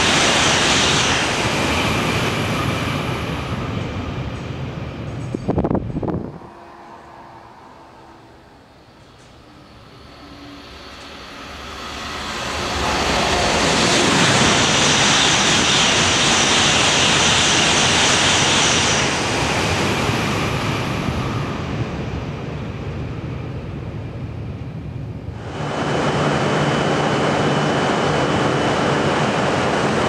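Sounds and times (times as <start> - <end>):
bullet train rushing past: 0.0 - 30.0
faint high whine: 5.4 - 14.1.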